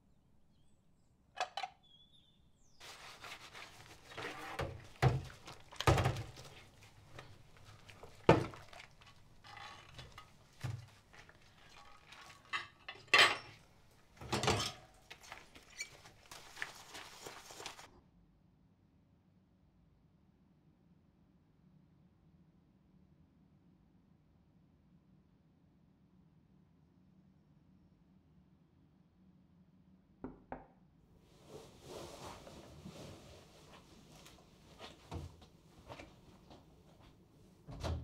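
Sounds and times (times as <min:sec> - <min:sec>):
crockery clinking in sink: 0:07.2 - 0:13.6, 0:14.2 - 0:15.0.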